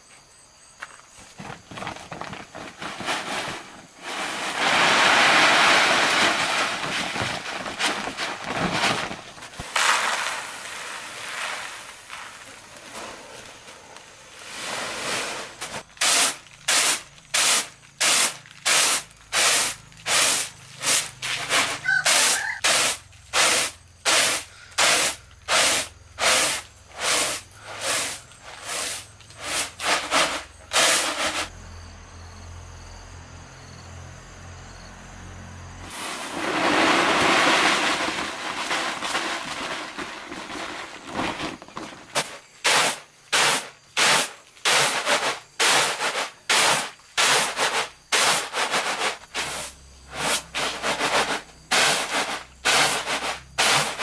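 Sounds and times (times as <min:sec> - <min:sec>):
rushing hiss: 0:02.9 - 0:31.5, 0:35.8 - 0:54.0.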